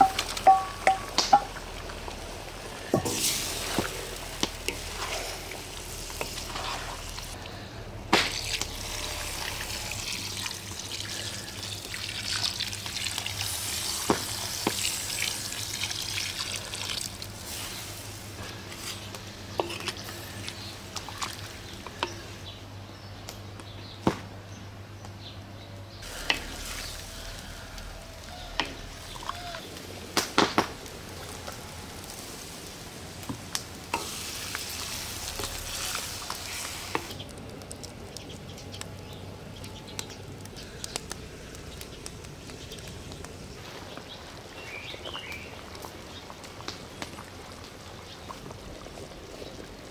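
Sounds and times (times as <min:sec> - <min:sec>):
spoon knocking against pan: 0:00.0 - 0:01.5
wooden spoons stirring: 0:00.0 - 0:02.0, 0:02.6 - 0:07.6, 0:16.8 - 0:22.3
curry sizzling and bubbling: 0:00.0 - 0:22.6, 0:26.0 - 0:49.9.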